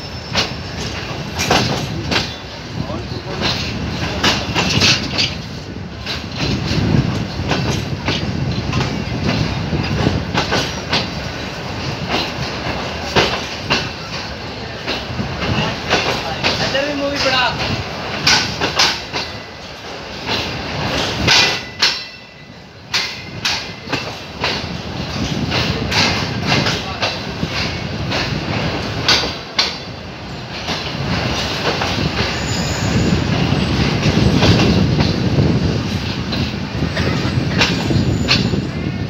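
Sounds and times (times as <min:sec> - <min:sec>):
low train running rumble: 0:00.0 - 0:39.0
train wheels clicking over rail joints: 0:00.0 - 0:39.0
thin wheel squeals: 0:32.3 - 0:33.2.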